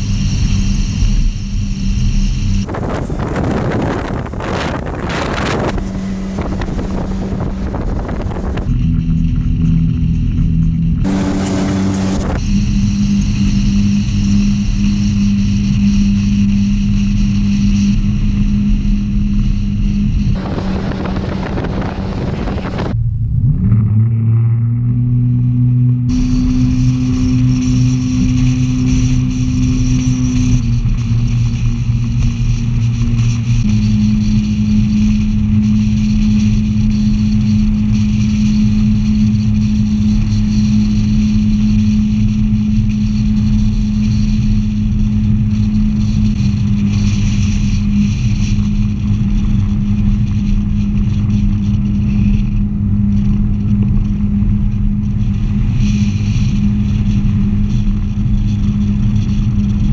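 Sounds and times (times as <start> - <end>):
jet boat engine running: 0.0 - 59.9
wind and water rushing: 2.6 - 8.7, 20.4 - 23.0.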